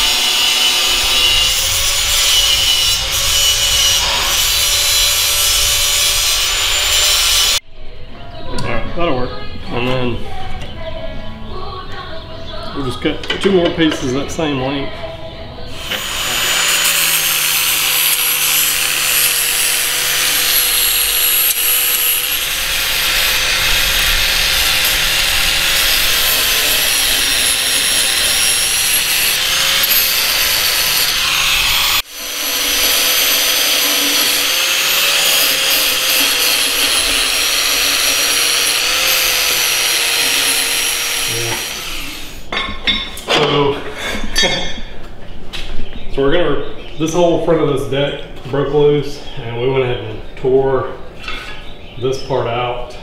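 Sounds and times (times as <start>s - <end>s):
angle grinder grinding steel: 0.0s - 7.6s, 15.7s - 42.6s.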